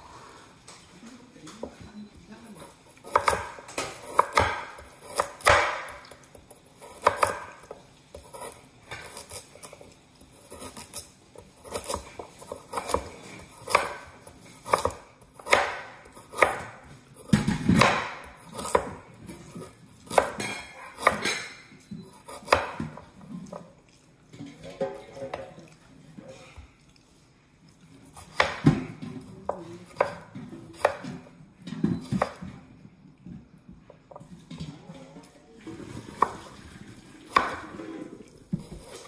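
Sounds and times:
knife chopping on wooden board: 3.0 - 6.1, 6.8 - 9.8, 11.6 - 23.2, 28.1 - 32.5, 37.3 - 37.8.

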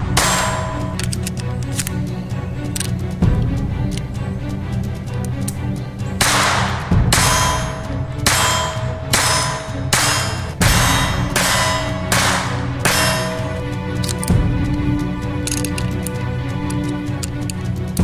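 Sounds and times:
heavy ringing metallic clangs: 0.0 - 1.0, 6.2 - 13.8
low music drone: 0.0 - 18.0.

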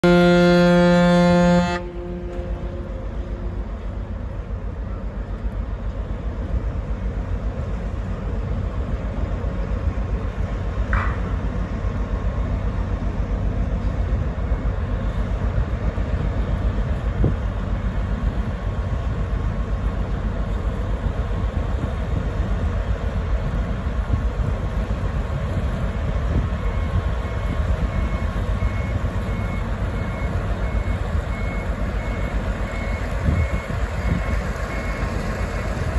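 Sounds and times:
brief higher tone: 0.0 - 5.0
ferry engines rumbling: 0.0 - 35.9.

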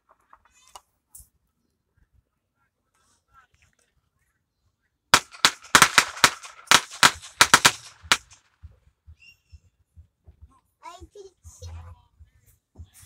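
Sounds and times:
firecrackers banging: 5.2 - 8.4.

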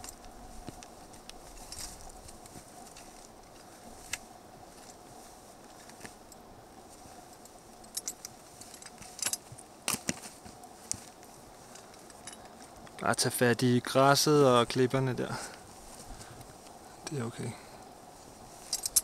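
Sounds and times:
faint steady hum: 0.0 - 19.0
gear jangling: 7.8 - 9.6, 18.6 - 19.0
boots and pole tapping rock: 8.9 - 11.9.

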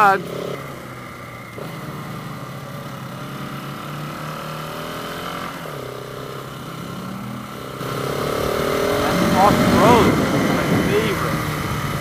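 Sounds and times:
motorcycle engine running: 0.0 - 12.0
wind rush on microphone: 8.1 - 12.0.

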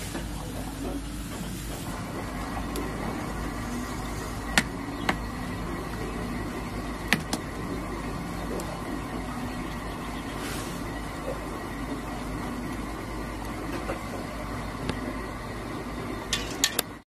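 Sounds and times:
pot hissing over fire: 10.2 - 13.3.

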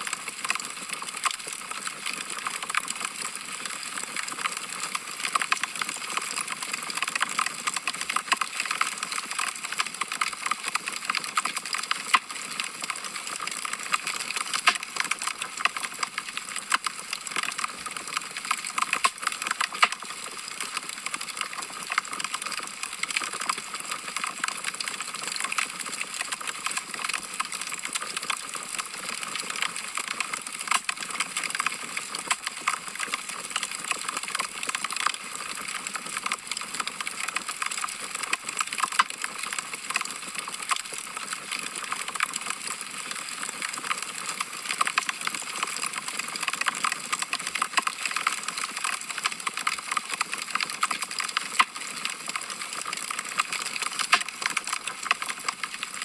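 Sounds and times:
wood fire crackling: 18.7 - 20.1.

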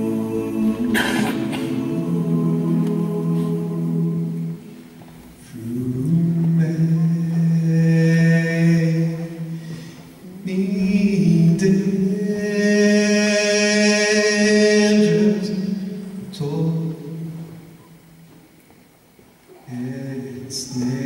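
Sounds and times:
a cappella choir holding chords: 0.0 - 9.6, 19.6 - 21.0.

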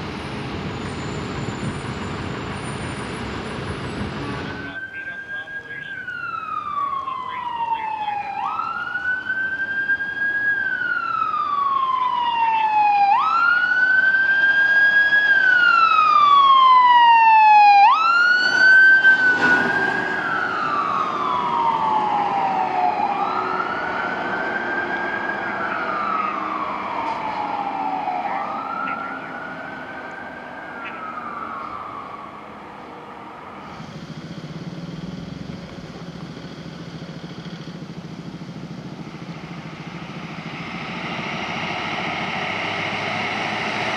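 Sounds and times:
emergency siren wailing: 0.0 - 43.9
low vehicle engine rumble: 17.9 - 43.9.

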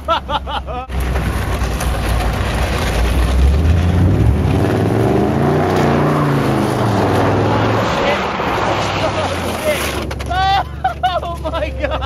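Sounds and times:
road noise inside car: 0.0 - 12.0
car engine accelerating: 0.9 - 10.3.

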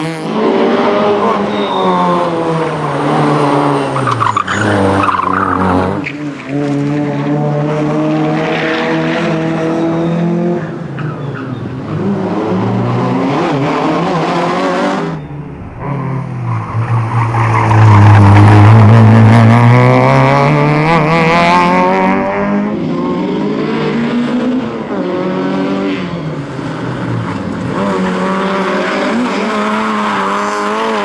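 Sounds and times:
car engine revving hard: 17.4 - 26.1, 27.7 - 31.0.

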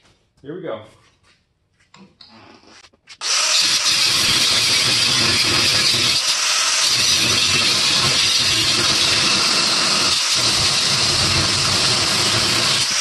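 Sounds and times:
grinder cutting steel: 3.2 - 13.0.

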